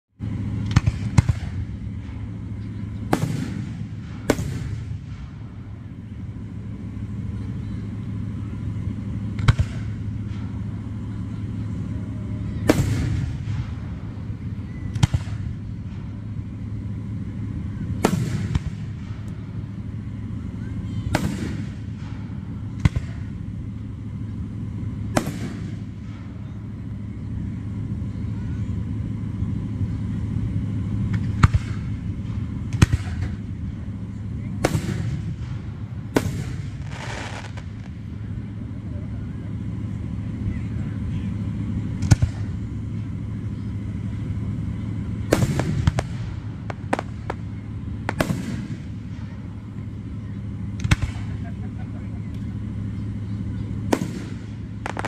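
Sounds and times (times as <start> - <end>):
low background rumble: 0.1 - 55.0
firework shells bursting with booms: 0.6 - 2.4, 3.0 - 5.7, 9.3 - 10.6, 12.6 - 16.4, 18.0 - 19.7, 21.1 - 23.8, 24.5 - 26.4, 31.1 - 33.8, 34.6 - 38.1, 45.2 - 49.6, 53.8 - 55.0.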